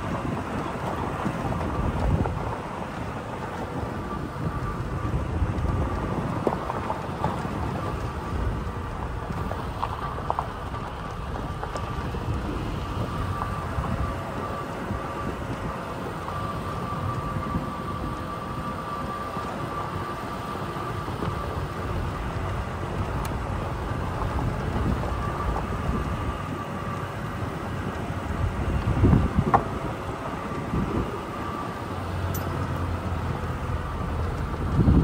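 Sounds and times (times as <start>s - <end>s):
faint steady whine: 0.0s - 35.0s
tyres rumbling over gravel: 0.0s - 35.0s.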